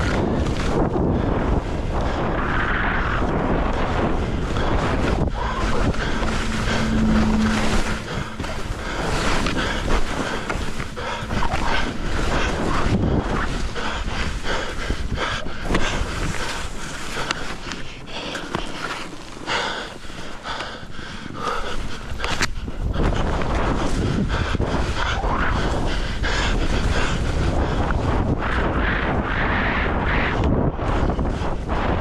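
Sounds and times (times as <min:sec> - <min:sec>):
skis scraping over snow: 0:00.0 - 0:20.8
wind buffeting microphone: 0:00.0 - 0:32.0
person breathing hard: 0:03.3 - 0:30.4.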